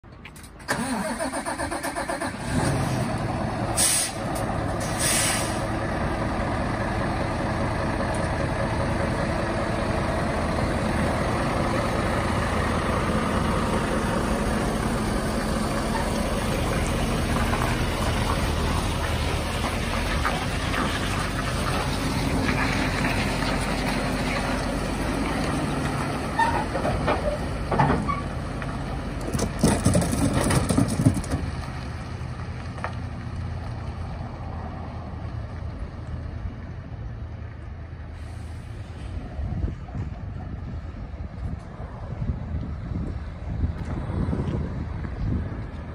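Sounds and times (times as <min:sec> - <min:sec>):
diesel truck engine starting and idling: 0:00.0 - 0:45.9
truck driving off: 0:00.1 - 0:45.9
short air hisses: 0:03.8 - 0:05.7.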